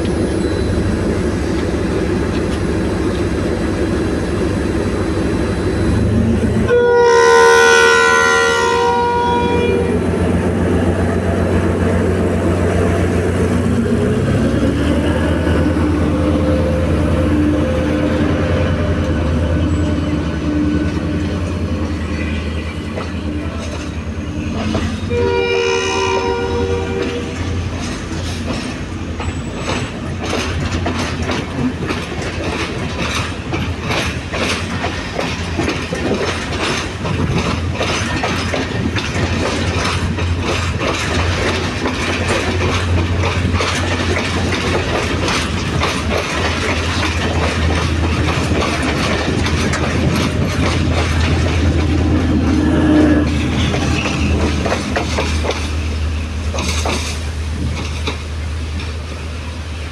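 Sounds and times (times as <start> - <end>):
train wheels clicking over rail joints: 0.0 - 6.7, 18.2 - 25.2, 26.9 - 59.9
train engine drone: 0.0 - 59.9.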